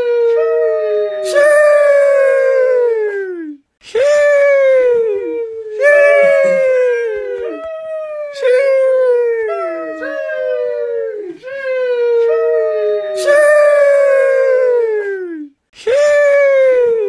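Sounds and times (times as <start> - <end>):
voice drawing out sheesh: 1.1 - 7.6.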